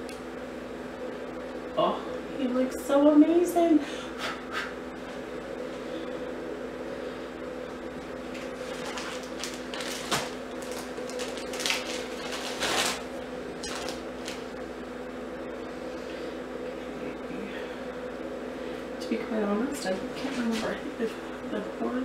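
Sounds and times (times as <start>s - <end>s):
steady low hum: 0.0s - 22.0s
plastic bags crinkling and rustling: 8.3s - 14.5s.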